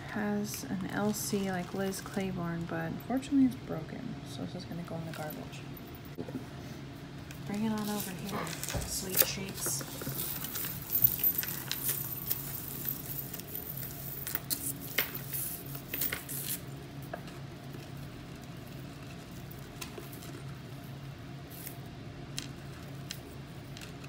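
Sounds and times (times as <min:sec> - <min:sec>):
metal chains clicking and rustling: 0:07.7 - 0:16.8.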